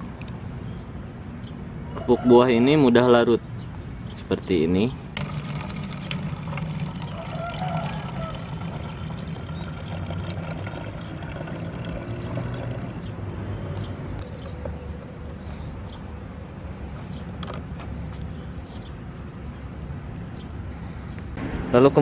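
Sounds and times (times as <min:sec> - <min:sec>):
distant city traffic rumble: 0:00.0 - 0:22.0.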